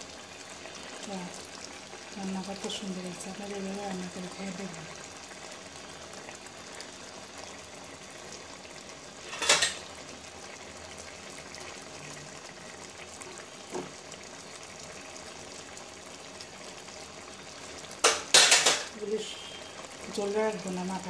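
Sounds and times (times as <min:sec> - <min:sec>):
curry bubbling in a pan: 0:00.0 - 0:21.0
metal spoon clattering on pan: 0:09.3 - 0:09.8, 0:18.0 - 0:18.9.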